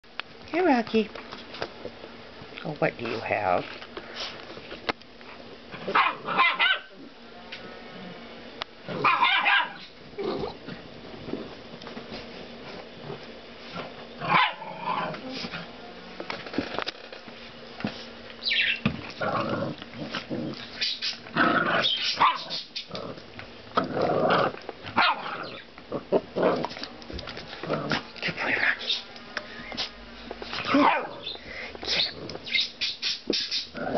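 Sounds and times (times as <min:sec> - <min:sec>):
puppies barking and yapping: 0:05.9 - 0:06.9, 0:09.0 - 0:10.6, 0:20.5 - 0:23.0.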